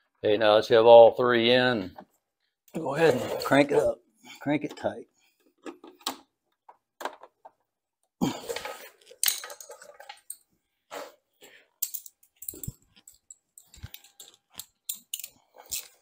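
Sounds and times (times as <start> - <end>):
metal hand tools clattering: 8.4 - 10.4.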